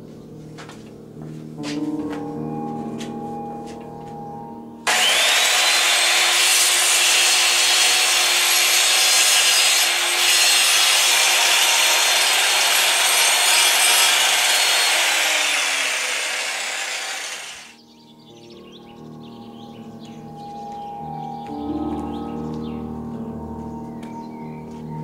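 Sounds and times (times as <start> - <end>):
angle grinder cutting metal: 4.9 - 17.8.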